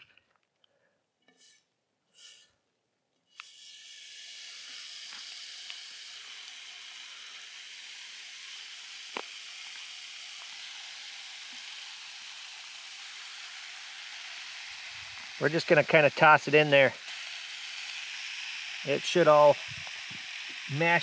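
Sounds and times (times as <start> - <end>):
bacon sizzling in frying pan: 3.5 - 21.0.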